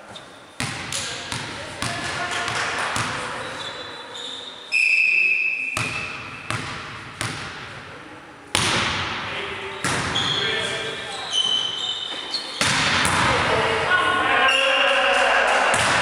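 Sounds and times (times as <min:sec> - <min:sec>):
referee's whistle: 0:03.4 - 0:06.2
volleyball bouncing on floor: 0:05.8 - 0:07.7, 0:08.5 - 0:09.1, 0:12.6 - 0:13.5, 0:15.7 - 0:16.0
volleyball struck by hand: 0:08.5 - 0:09.1, 0:12.6 - 0:13.4, 0:15.7 - 0:16.0.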